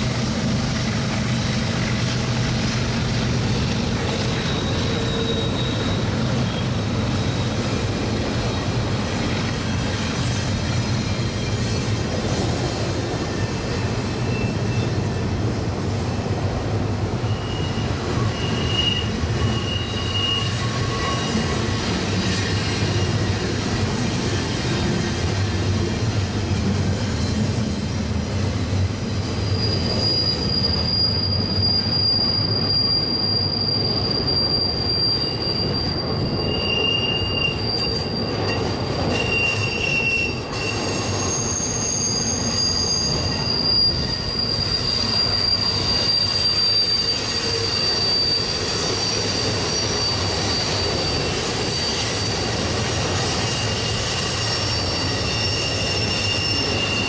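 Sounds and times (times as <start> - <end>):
train cars rumbling: 0.0 - 57.0
train wheels squealing: 0.0 - 57.0.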